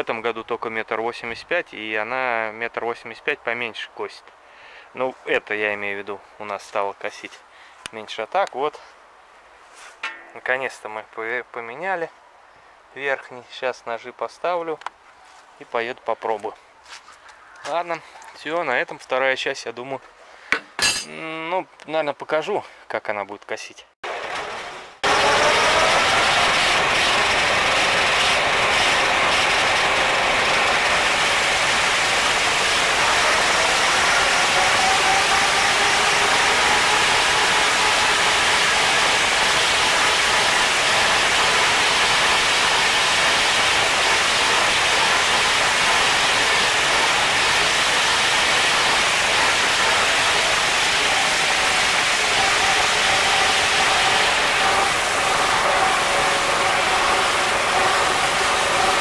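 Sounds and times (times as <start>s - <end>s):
rotary mower cutting grass: 24.1s - 59.0s.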